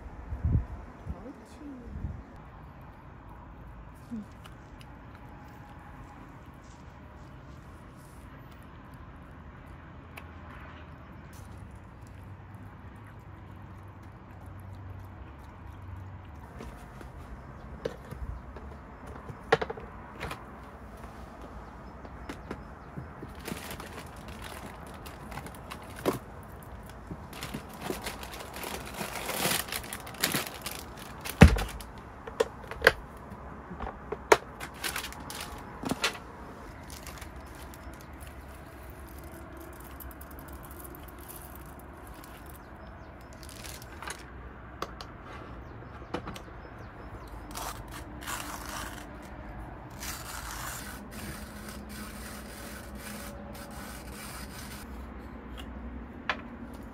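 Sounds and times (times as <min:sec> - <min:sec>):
items clicking and knocking: 0:16.4 - 0:20.6, 0:22.0 - 0:38.4.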